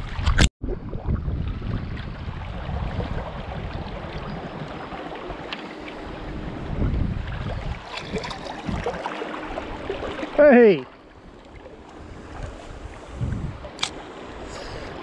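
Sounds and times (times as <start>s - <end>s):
wind buffeting microphone: 0.0s - 10.5s, 11.1s - 15.0s
river water rushing: 7.8s - 12.8s.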